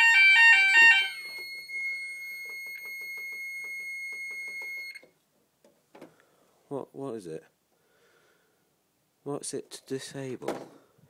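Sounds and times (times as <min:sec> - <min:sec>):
high-pitched panel buzzer: 0:00.0 - 0:05.0
two-tone fire alarm: 0:00.0 - 0:05.1.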